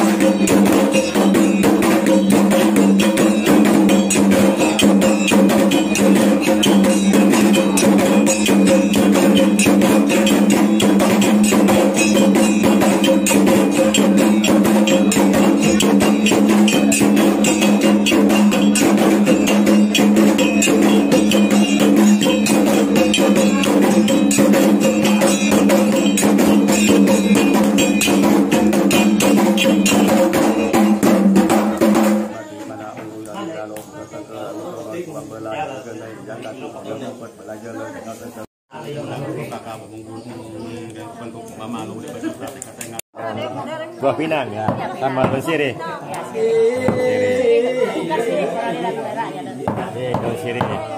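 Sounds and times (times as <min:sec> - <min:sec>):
drums beaten rapidly: 0:00.0 - 0:33.2, 0:44.6 - 0:45.8, 0:46.4 - 0:47.8, 0:49.6 - 0:50.9.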